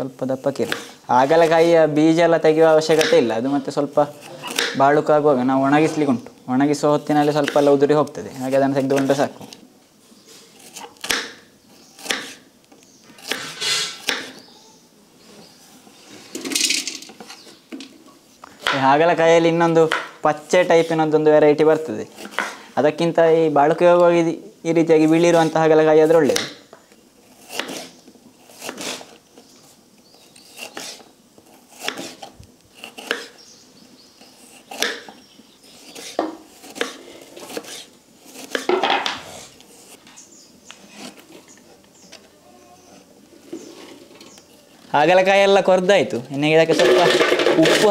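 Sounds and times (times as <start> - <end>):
knife chopping on wooden board: 2.9 - 3.2, 4.4 - 4.8, 10.7 - 11.4, 12.0 - 12.4, 13.2 - 14.4, 19.8 - 20.1, 22.2 - 22.6, 26.3 - 26.6, 27.5 - 27.9, 28.5 - 29.1, 31.7 - 33.4, 34.5 - 35.2, 35.8 - 39.3
knife scraping board: 7.2 - 7.8, 13.2 - 14.4, 22.1 - 22.7, 27.3 - 29.2, 30.3 - 33.4, 34.2 - 40.0, 40.7 - 41.7, 42.5 - 44.4
knife slicing onto wooden board: 27.5 - 27.9, 35.9 - 39.5.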